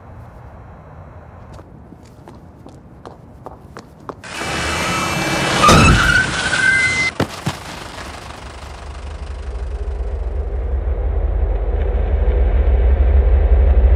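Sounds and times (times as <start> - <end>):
high squealing tone: 4.3 - 7.2
burst of noise: 4.3 - 10.8
low pulsing rumble: 8.3 - 13.9.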